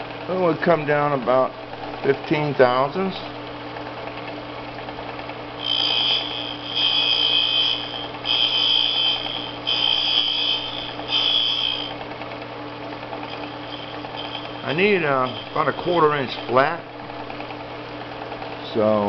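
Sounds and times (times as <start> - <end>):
high-pitched scraping squeal: 5.6 - 12.0, 13.2 - 16.8
surface grinder humming: 5.6 - 12.3, 12.9 - 17.6.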